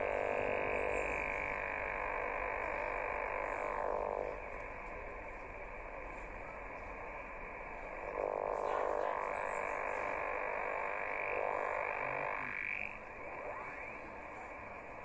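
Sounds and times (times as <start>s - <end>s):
radio interference buzzing: 0.0s - 4.4s.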